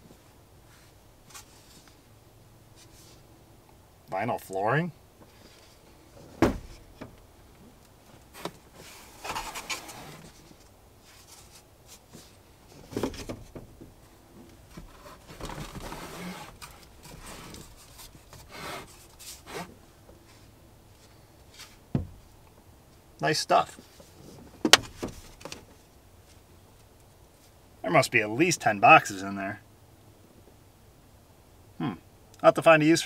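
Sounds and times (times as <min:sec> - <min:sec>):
vinyl planks scraping: 0:08.3 - 0:13.5, 0:14.7 - 0:21.8.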